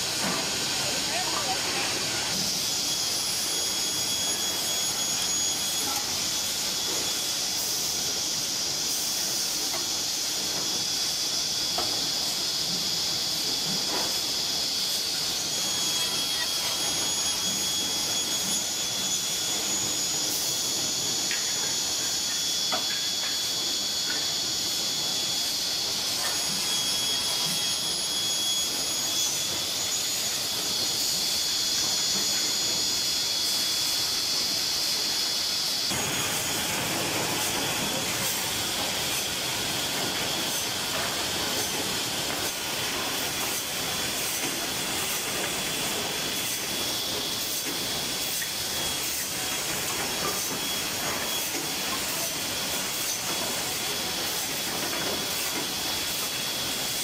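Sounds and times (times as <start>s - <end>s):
high whine of saw: 0.0s - 57.0s
saw cutting wood: 35.8s - 45.8s.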